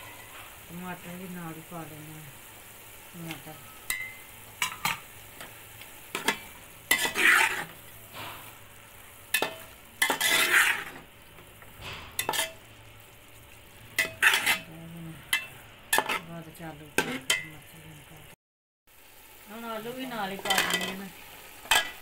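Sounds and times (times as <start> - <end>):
frying sizzle: 0.0 - 22.0
spoon scraping a steel pot: 6.2 - 8.4, 9.4 - 11.0, 12.0 - 12.6, 14.0 - 14.7.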